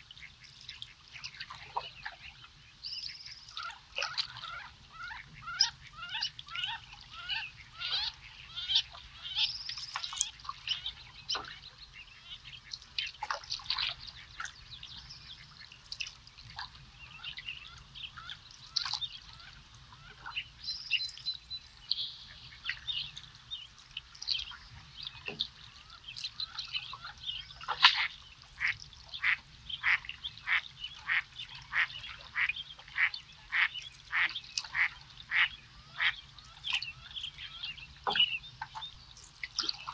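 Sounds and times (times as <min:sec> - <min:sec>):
wild birds calling: 0:24.4 - 0:39.9.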